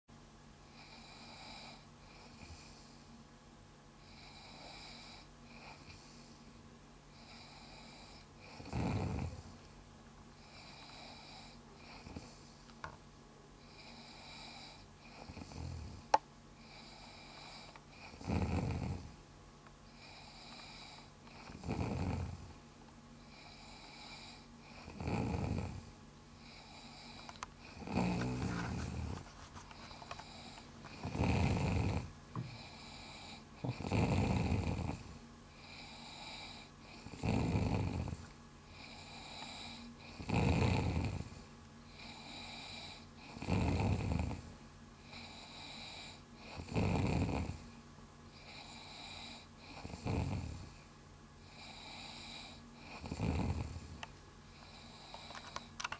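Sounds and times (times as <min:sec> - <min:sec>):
quiet breathing: 0:00.6 - 0:03.3, 0:03.9 - 0:55.9
person snoring: 0:07.2 - 0:09.5, 0:13.6 - 0:16.0, 0:16.6 - 0:19.1, 0:20.0 - 0:22.5, 0:23.2 - 0:29.2, 0:29.8 - 0:47.6, 0:48.4 - 0:50.8, 0:51.5 - 0:54.0, 0:54.6 - 0:55.7.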